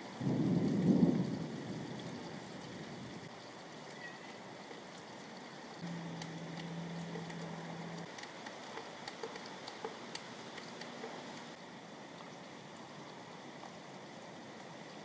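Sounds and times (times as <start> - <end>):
steady rain: 0.0 - 15.0
low steady hum: 5.5 - 15.0
drips ticking: 5.8 - 11.6.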